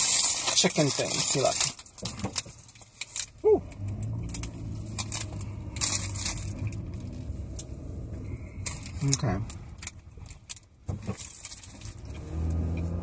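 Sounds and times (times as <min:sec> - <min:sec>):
paper wrapper crinkling: 0:00.0 - 0:07.4, 0:08.6 - 0:12.2
person humming: 0:03.4 - 0:03.7.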